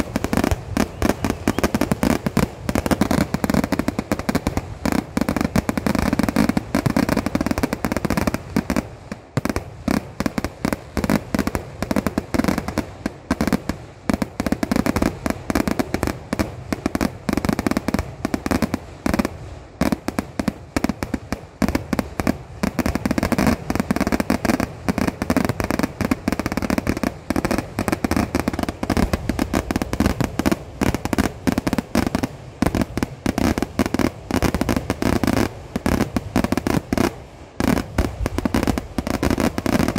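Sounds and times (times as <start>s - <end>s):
fireworks barrage of bangs: 0.0s - 39.9s.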